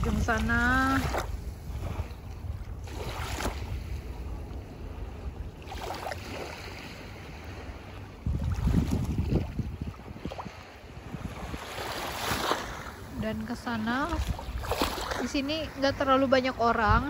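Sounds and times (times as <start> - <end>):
small waves washing onto shore: 0.0 - 17.0
wind buffeting microphone: 0.0 - 17.0.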